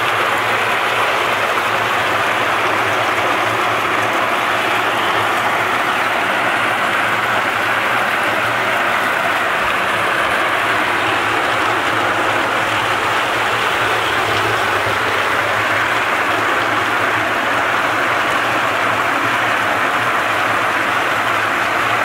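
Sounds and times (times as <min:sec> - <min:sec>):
water pouring from hose: 0:00.0 - 0:22.0.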